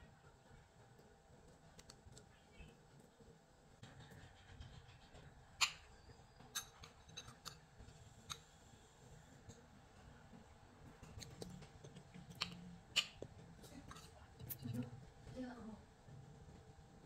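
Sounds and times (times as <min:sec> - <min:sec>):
fork clinking on ceramic plate: 0:06.6 - 0:07.6.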